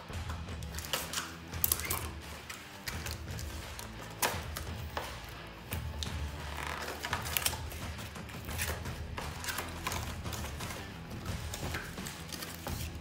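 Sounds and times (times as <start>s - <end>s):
cardboard packaging scraping and creaking: 6.2s - 7.8s.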